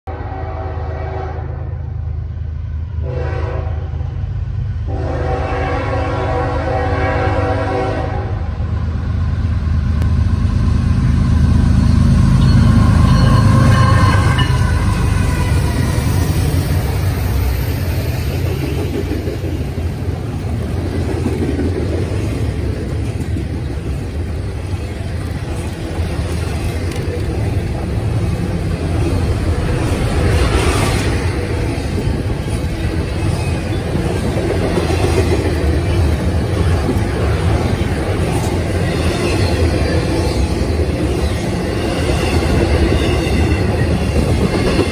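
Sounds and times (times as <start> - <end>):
locomotive air horn blasts: 0.1 - 1.8, 3.0 - 4.0, 4.9 - 8.6, 13.0 - 16.0
freight train passing: 0.1 - 44.9
steel wheels rumbling on rail: 0.1 - 44.9.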